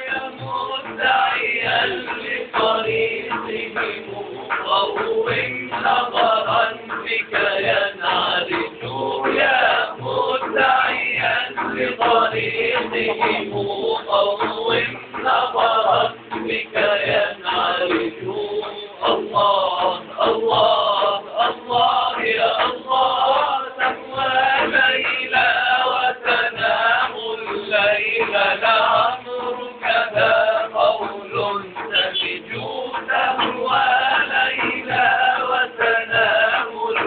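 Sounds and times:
frame drums beating: 0.0s - 37.0s
men chanting in unison: 0.0s - 37.0s.

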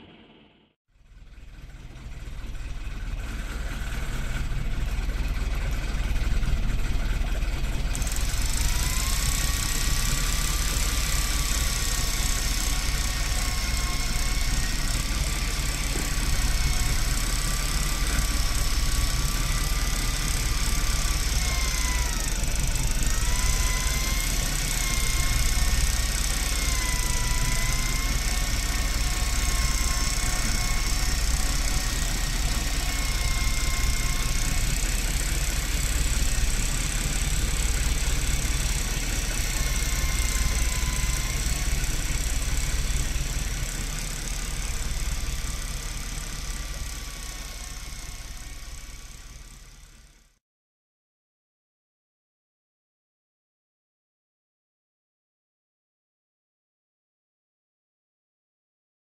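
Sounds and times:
fishing reel motor whining: 7.9s - 50.1s.

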